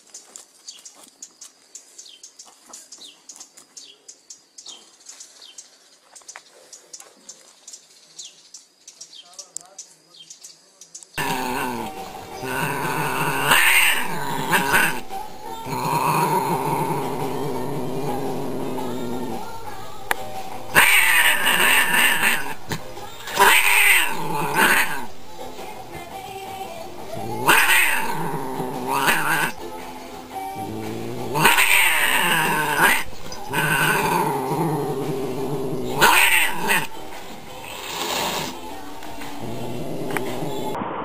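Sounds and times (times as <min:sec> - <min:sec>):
cats yowling: 0:11.2 - 0:20.1, 0:20.7 - 0:25.2, 0:27.1 - 0:29.6, 0:30.5 - 0:37.0, 0:39.4 - 0:40.8
background music: 0:11.2 - 0:40.8.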